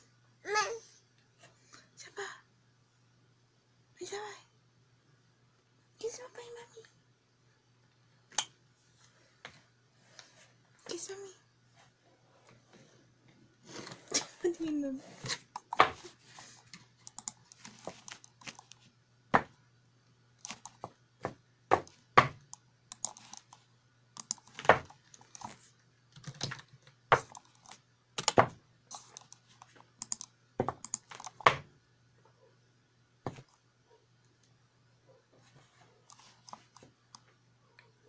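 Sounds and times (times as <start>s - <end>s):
faint low hum: 0.0s - 38.0s
keyboard keys tapping: 17.1s - 18.7s, 30.0s - 31.6s.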